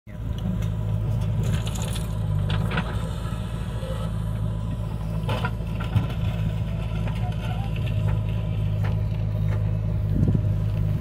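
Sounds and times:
diesel engine hum: 0:00.1 - 0:11.0.

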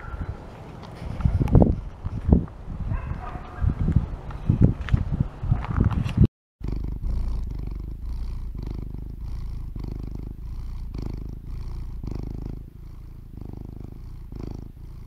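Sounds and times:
cat purring: 0:06.6 - 0:15.0.

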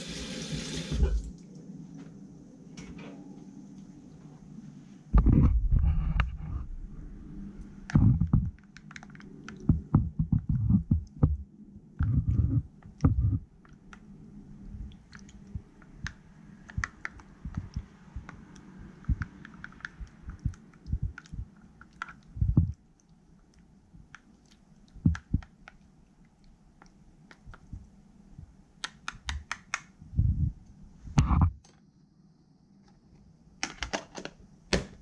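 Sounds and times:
wet squishing: 0:12.8 - 0:27.9.

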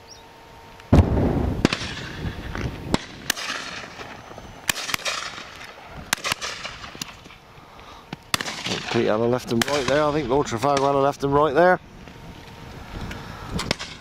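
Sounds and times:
shotgun shots: 0:00.9 - 0:07.2, 0:08.3 - 0:11.0.

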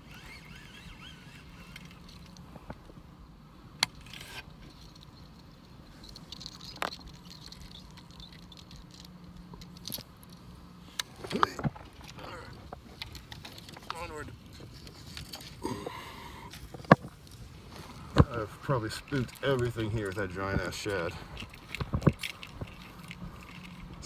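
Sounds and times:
fishing reel clicks: 0:00.0 - 0:02.4
low steady hum: 0:00.0 - 0:24.0.

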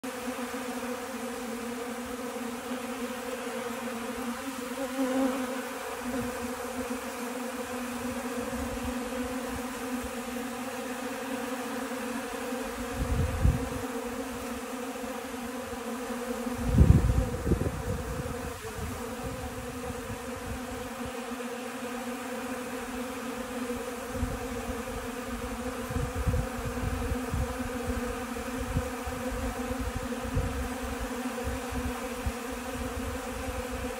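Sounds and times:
bees buzzing: 0:00.0 - 0:33.9.

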